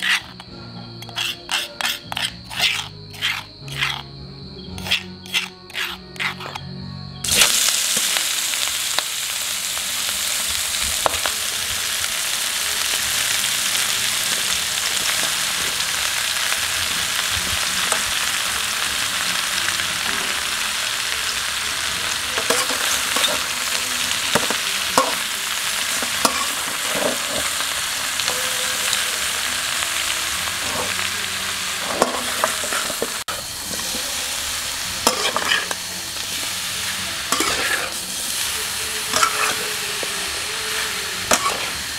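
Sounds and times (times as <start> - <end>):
metal spatula scraping wok: 0.0 - 4.1, 4.7 - 6.7, 22.1 - 41.9
meat sizzling in a wok: 7.2 - 41.9.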